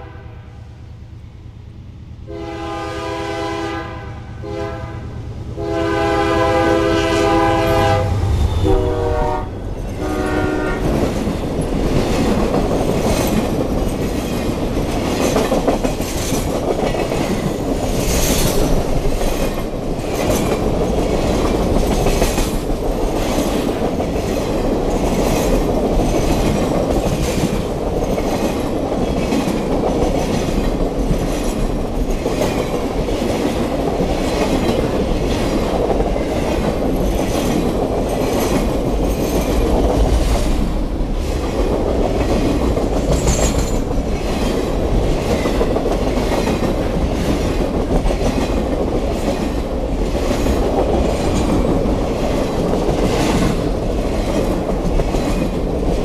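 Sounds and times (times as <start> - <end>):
locomotive horn blasts: 0.0 - 0.6, 2.3 - 10.9
steady train rumble: 0.0 - 56.0
train wheels clicking over rails: 8.7 - 56.0.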